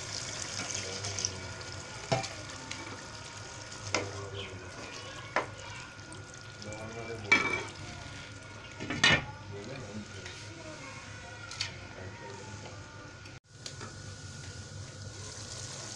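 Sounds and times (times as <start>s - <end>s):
curry sizzling in a wok: 0.0s - 15.9s.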